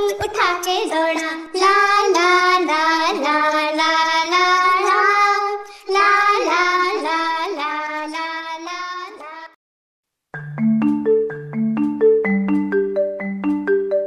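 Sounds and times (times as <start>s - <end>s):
child singing: 0.0s - 9.6s.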